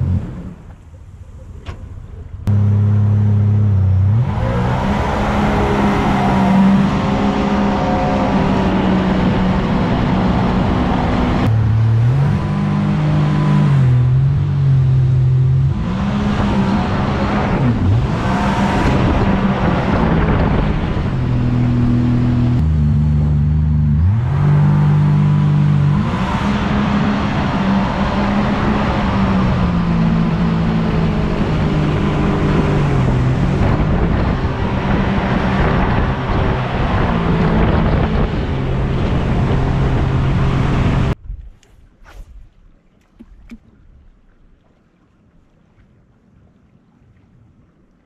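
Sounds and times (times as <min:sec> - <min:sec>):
outboard motor running: 0:00.0 - 0:05.8
wind: 0:00.0 - 0:48.0
rushing water: 0:24.1 - 0:48.0.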